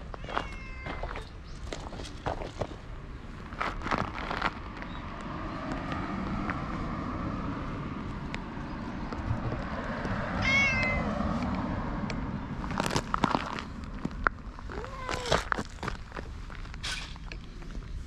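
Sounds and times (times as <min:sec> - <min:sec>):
cat meowing: 0:00.1 - 0:01.2, 0:10.4 - 0:11.1, 0:14.7 - 0:15.5.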